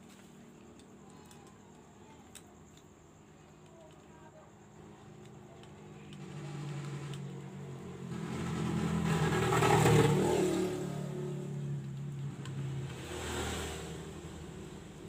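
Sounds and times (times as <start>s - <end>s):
vehicle engine passing by: 6.1s - 15.0s.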